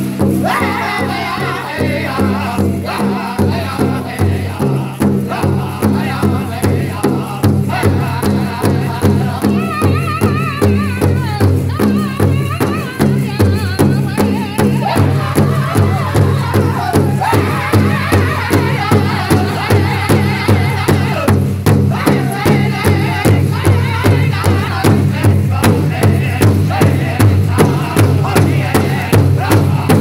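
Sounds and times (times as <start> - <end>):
large drum steady beat: 0.0 - 30.0
men singing high in unison: 0.0 - 30.0.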